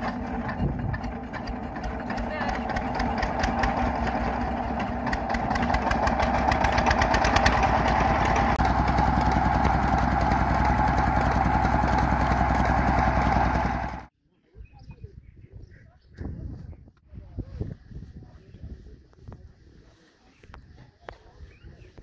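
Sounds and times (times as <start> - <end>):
stationary diesel engine running: 0.0 - 14.1.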